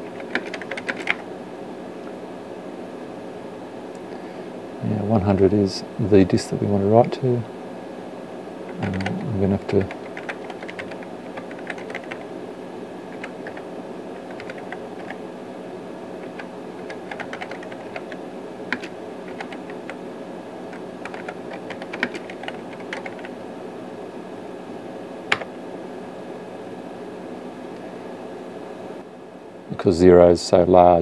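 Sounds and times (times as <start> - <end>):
typing on computer keyboard: 0.0 - 1.2, 8.7 - 9.2, 9.8 - 12.3, 13.1 - 15.2, 16.2 - 20.0, 20.7 - 23.3
steady machine hum: 0.0 - 31.0.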